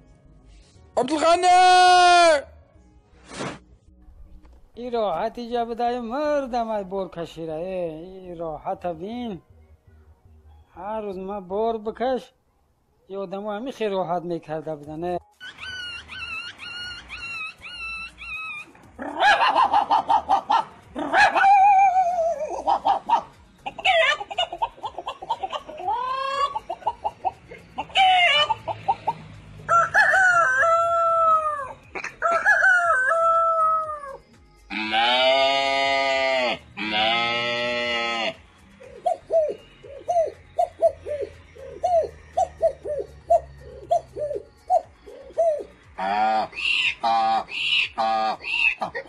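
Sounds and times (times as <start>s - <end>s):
dog wavering calls: 15.5s - 29.1s
man imitating goat bleats: 34.7s - 38.4s, 46.0s - 49.0s.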